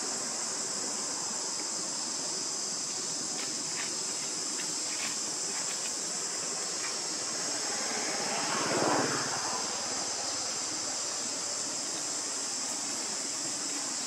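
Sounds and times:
high-pitched insect drone: 0.0s - 14.0s
broad swell of noise: 6.4s - 14.0s.

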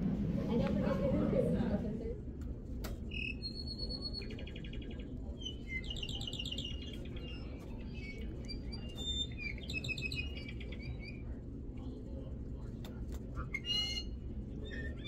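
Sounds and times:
low background hum: 0.0s - 15.0s
recorded bird songs: 3.0s - 12.7s, 13.4s - 15.0s.

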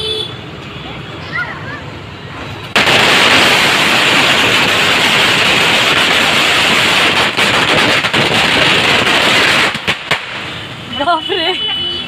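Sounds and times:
firework hissing: 2.3s - 10.8s.

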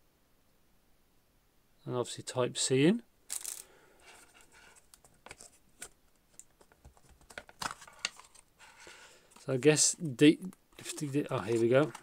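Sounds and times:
plastic packaging crinkle: 3.3s - 3.7s.

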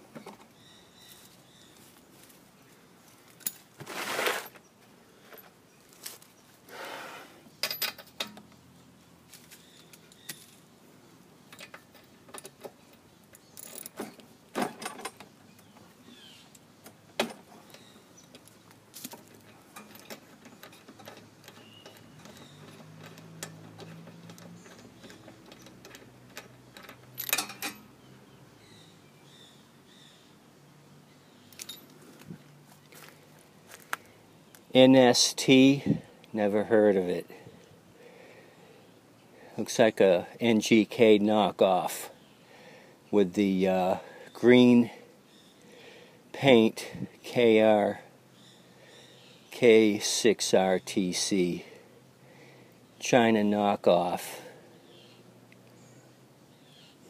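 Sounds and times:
metal hand tools clinking on engine: 3.4s - 3.7s, 7.6s - 8.5s, 11.5s - 15.3s, 19.0s - 28.0s, 31.5s - 32.0s.

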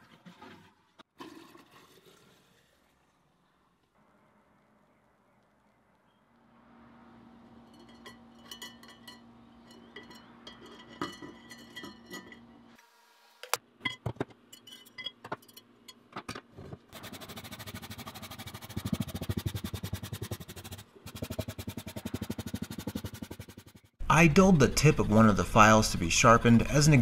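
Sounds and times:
steel files clinking against glass: 7.7s - 12.6s, 13.9s - 16.0s
wire brush scrubbing a file: 17.0s - 23.9s.

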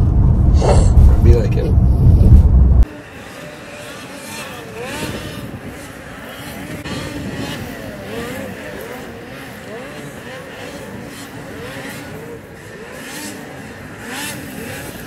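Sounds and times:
road rumble inside car: 0.0s - 2.9s
snowmobile engines revving: 2.8s - 15.0s.

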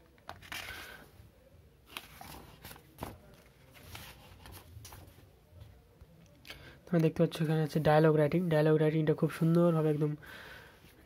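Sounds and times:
book pages turning: 0.1s - 1.0s, 1.8s - 5.2s.

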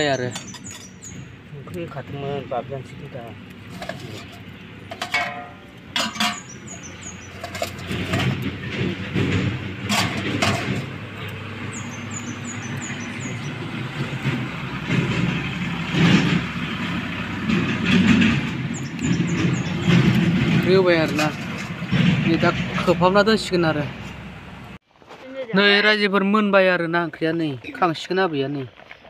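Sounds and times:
steady low engine rumble: 0.0s - 24.8s.

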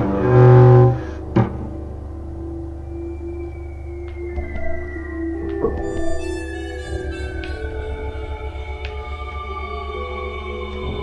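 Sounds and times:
low held note: 0.0s - 9.6s
low drone: 0.0s - 11.0s.

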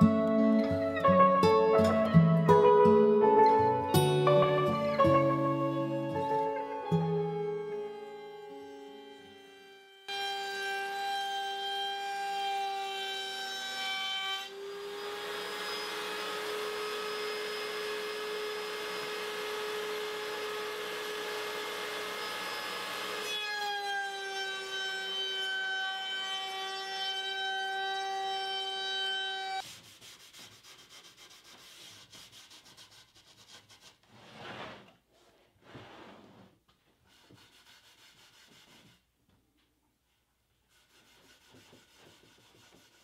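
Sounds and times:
router rasping cut into wood: 8.9s - 26.2s
router high whine: 14.5s - 23.2s.

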